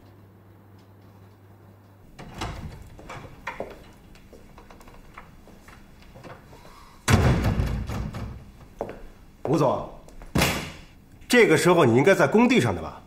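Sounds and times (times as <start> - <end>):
wooden door opening: 2.1 - 8.9
sharp knocks and clicks: 2.2 - 6.4
heavy thud: 7.1 - 8.5.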